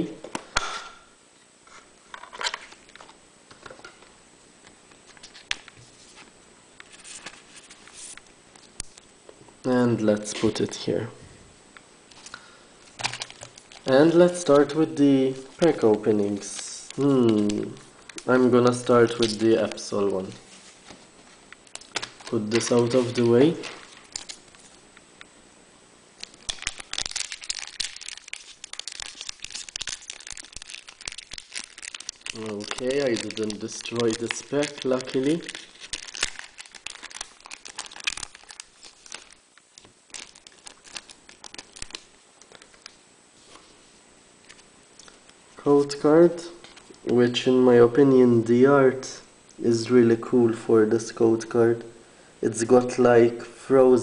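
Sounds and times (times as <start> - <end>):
foil wrapper crinkling: 12.9 - 14.6, 21.7 - 24.8, 26.2 - 43.7.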